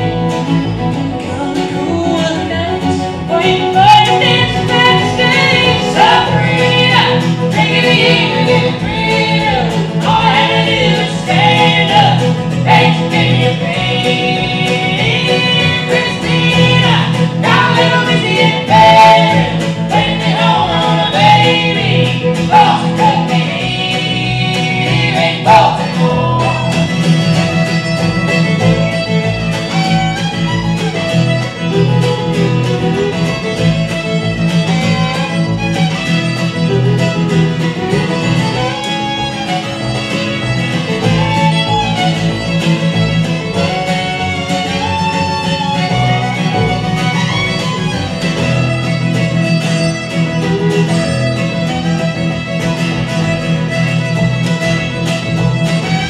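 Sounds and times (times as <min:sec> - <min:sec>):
acoustic string band playing: 0:00.0 - 0:56.0
fiddle: 0:00.0 - 0:56.0
voices singing in harmony: 0:03.3 - 0:27.0.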